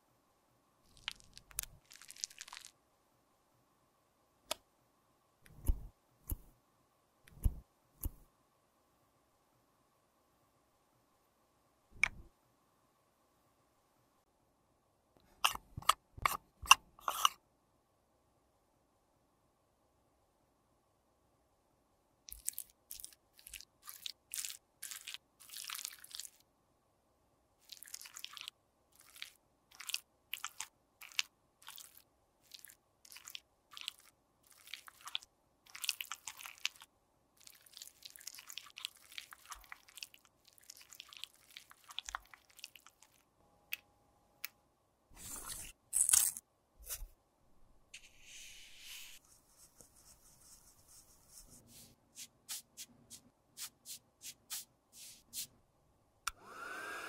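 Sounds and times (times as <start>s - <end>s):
metal spatula scraping plastic pot: 15.3s - 17.4s.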